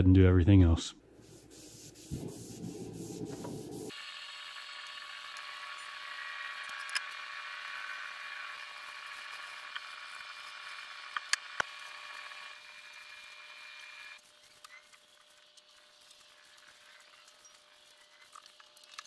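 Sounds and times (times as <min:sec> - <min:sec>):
rag rubbing on wood: 0:01.2 - 0:03.9.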